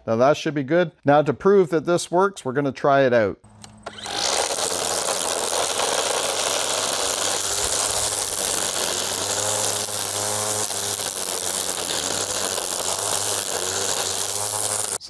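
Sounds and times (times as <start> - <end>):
string trimmer motor humming: 3.5 - 15.0
trimmer line whirring through grass: 3.6 - 15.0.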